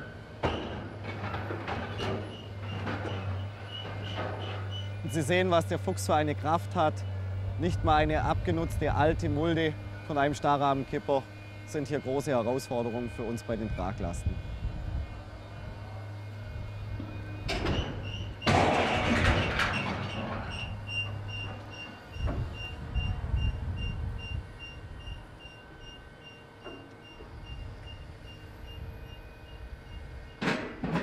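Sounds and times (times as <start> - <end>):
machine engine running: 0.0 - 31.0
warning alarm beeping: 2.7 - 14.2, 19.3 - 30.4
loud clatter: 18.4 - 20.6.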